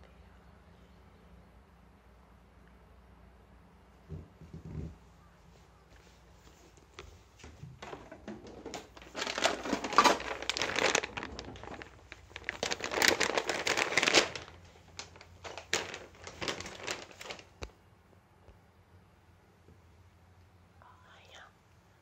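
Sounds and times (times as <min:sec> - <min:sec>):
plastic packaging crinkling: 0:07.8 - 0:17.7
scattered crackles and clicks: 0:07.8 - 0:17.8.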